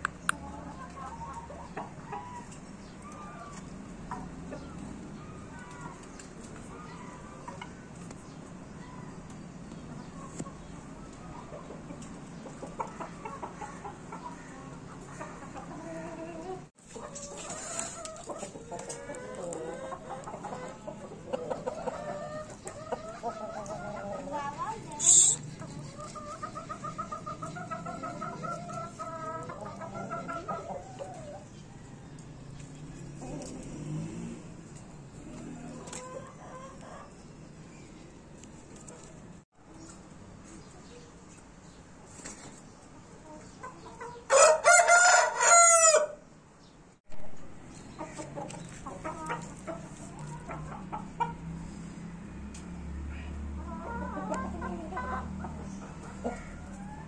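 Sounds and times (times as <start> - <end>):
chicken clucking: 0.0 - 45.9, 47.7 - 57.0
rooster crowing: 44.3 - 46.2.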